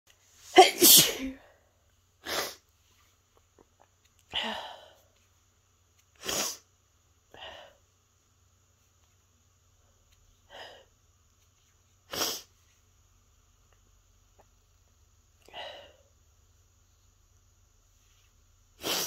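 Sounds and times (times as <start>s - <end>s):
woman sneezing: 0.5s - 1.5s, 18.8s - 19.0s.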